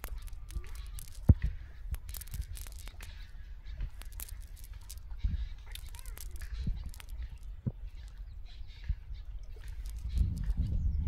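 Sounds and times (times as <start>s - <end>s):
fishing net rustling: 0.0s - 8.2s, 9.6s - 10.6s
small clicks: 0.0s - 8.2s, 9.6s - 10.6s.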